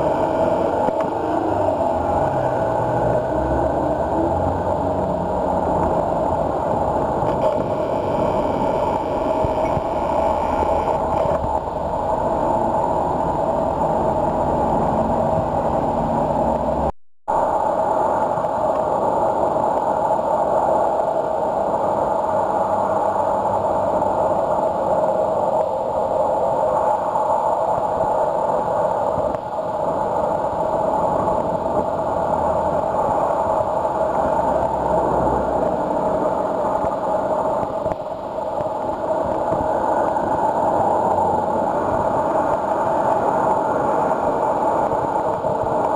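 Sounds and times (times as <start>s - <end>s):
road traffic noise: 0.0s - 16.9s, 29.9s - 45.9s.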